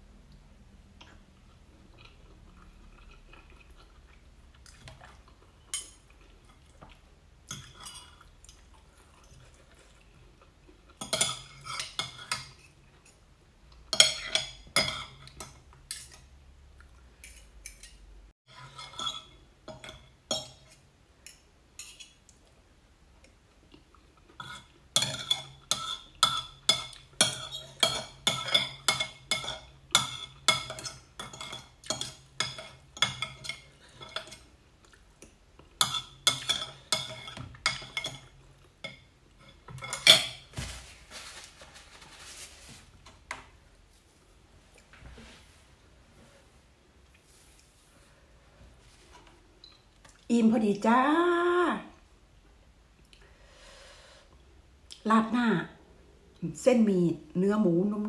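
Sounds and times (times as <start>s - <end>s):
cutlery clinking on ceramic plate: 13.9s - 16.2s.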